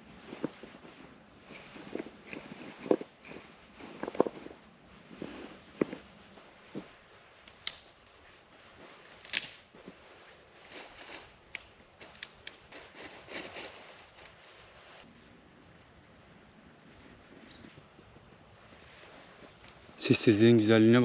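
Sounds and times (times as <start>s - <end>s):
rustling scrapes: 0.0s - 15.1s, 18.6s - 20.7s
camp gear clicking: 0.2s - 8.2s, 8.8s - 10.0s, 10.6s - 15.2s.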